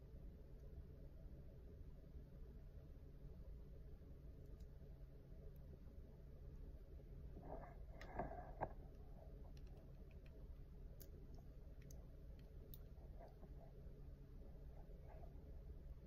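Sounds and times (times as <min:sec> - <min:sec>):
low steady hum: 0:00.0 - 0:16.0
faint clicks and rustles: 0:07.3 - 0:16.0.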